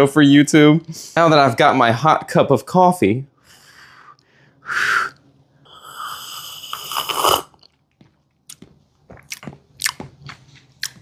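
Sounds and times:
person slurping hot coffee: 5.7s - 7.7s
lip smacks: 9.2s - 11.0s.

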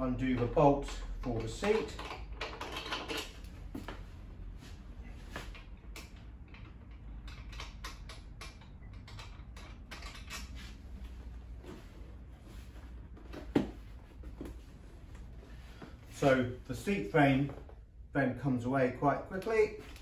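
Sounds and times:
bolts clicking and scraping: 0.1s - 4.1s, 5.2s - 11.9s.

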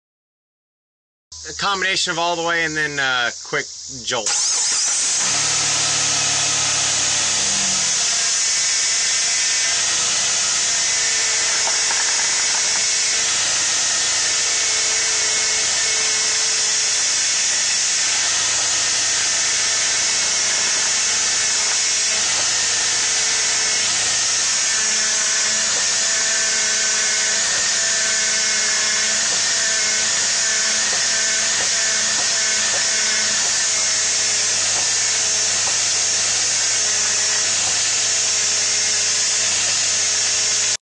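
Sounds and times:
steady loud hiss: 1.4s - 40.8s
engine whining tones: 4.3s - 37.9s.

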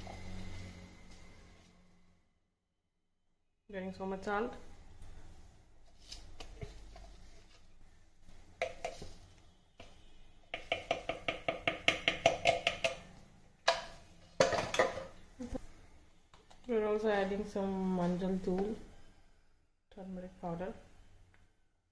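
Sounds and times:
spoon tapping metal pot: 8.6s - 9.1s, 10.5s - 15.1s.

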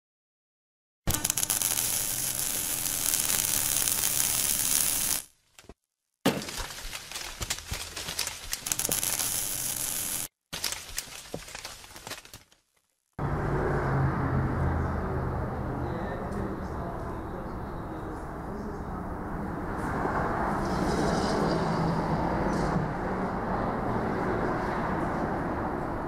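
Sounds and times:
sharp crackles and glassy clinks: 1.1s - 5.2s, 6.6s - 10.3s
crackling hiss like burning: 1.1s - 5.3s, 8.6s - 10.3s.

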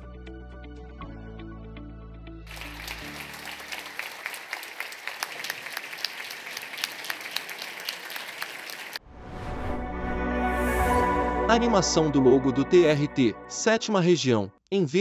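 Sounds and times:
background music: 0.0s - 7.4s, 9.0s - 14.6s
audience applause: 2.5s - 9.0s.

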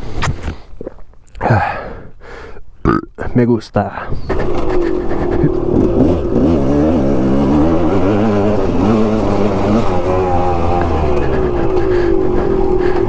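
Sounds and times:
dirt bike engine revving: 4.3s - 13.0s.

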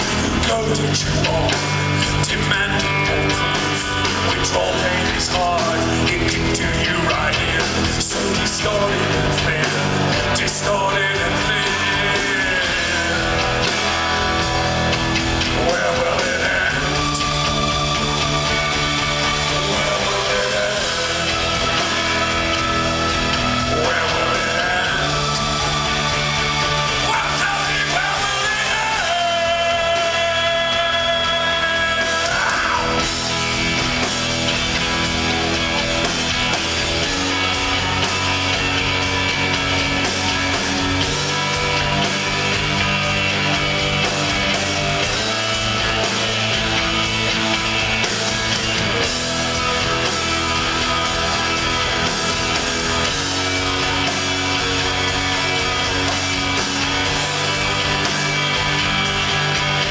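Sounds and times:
person singing: 0.0s - 14.5s, 15.4s - 33.3s
live rock band playing: 0.0s - 59.9s.

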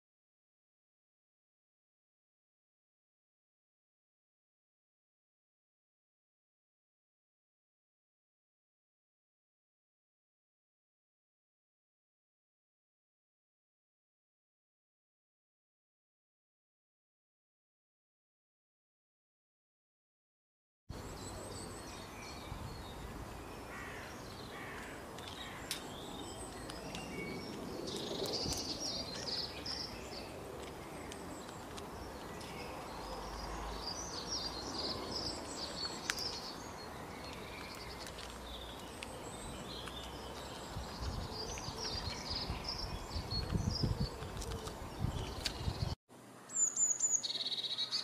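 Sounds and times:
songbirds chirping and trilling: 20.9s - 48.0s.

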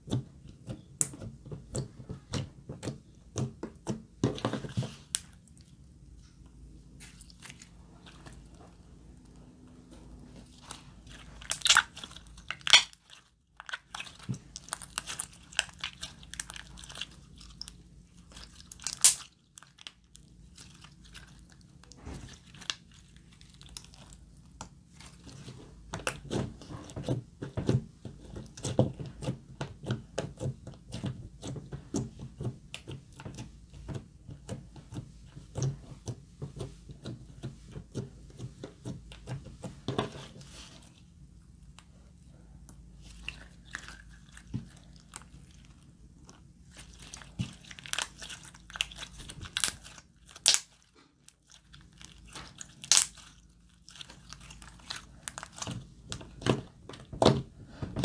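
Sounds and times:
hands squeezing slime: 7.0s - 41.1s, 42.8s - 57.5s.

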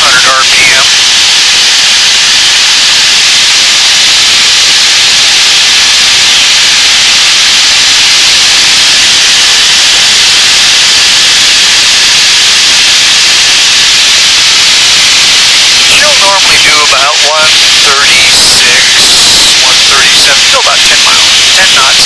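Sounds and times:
aircraft engine and propeller: 0.7s - 20.5s
rush of air: 0.9s - 16.1s.

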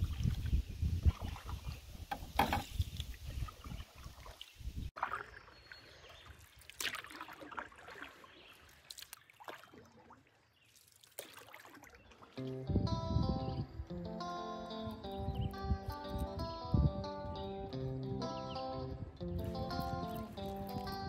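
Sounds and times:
paddle blades dipping in water: 0.0s - 12.6s
water dripping off paddle: 5.0s - 12.5s.

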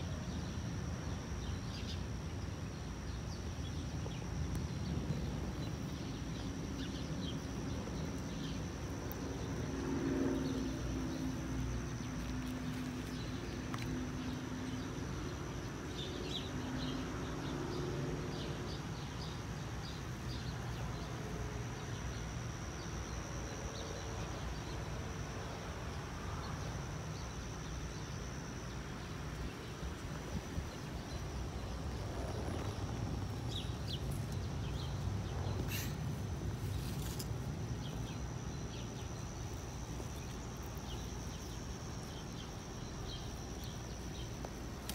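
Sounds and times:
faint bird chirps: 34.7s - 36.2s.

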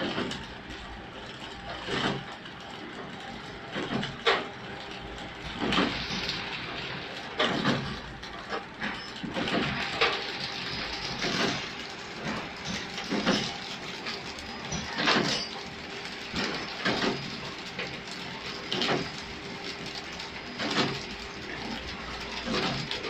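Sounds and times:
packing machine whirring: 0.0s - 23.0s.

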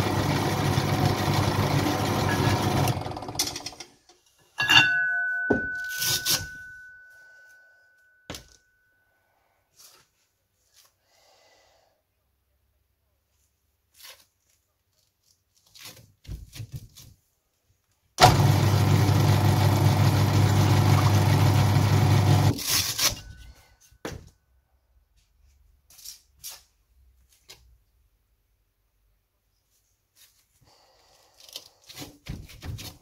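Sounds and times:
drill press motor running: 0.0s - 3.6s, 18.2s - 22.5s
motor winding down: 18.2s - 22.5s.

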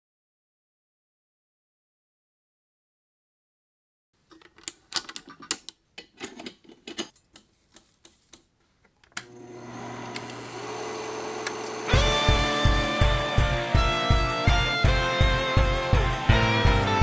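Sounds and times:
film projector clicks and clacks: 9.2s - 12.0s
projector motor humming: 9.2s - 13.2s.

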